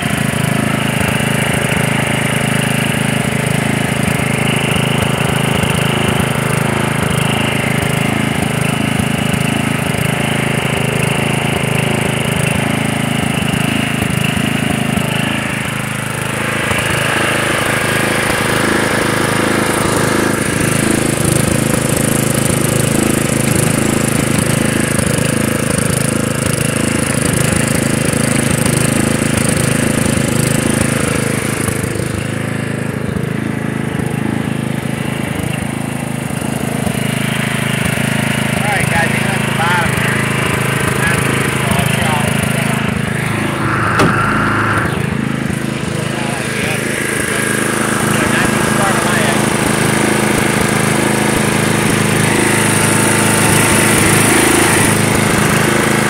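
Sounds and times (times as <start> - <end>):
lawn mower engine running: 0.0 - 56.0
hissy rush: 42.2 - 46.6.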